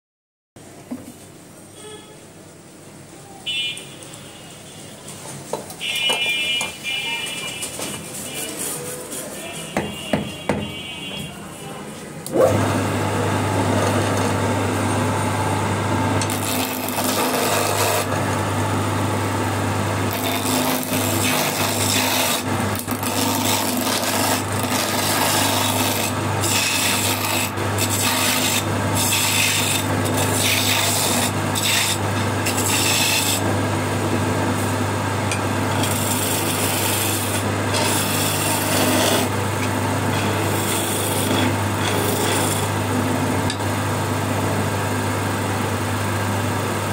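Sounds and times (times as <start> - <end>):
lathe motor hum: 12.3 - 46.9
chisel scraping spinning wood: 13.7 - 14.6, 16.2 - 43.6.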